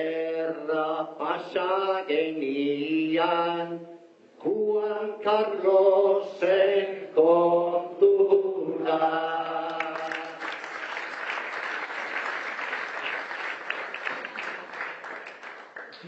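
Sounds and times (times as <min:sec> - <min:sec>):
man singing unaccompanied: 0:00.0 - 0:10.5
audience applause: 0:09.8 - 0:16.0.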